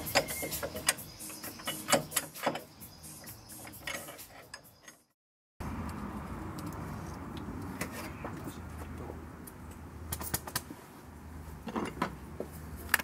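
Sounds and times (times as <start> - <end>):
metal clicks and knocks: 0.0 - 2.7, 3.3 - 5.1.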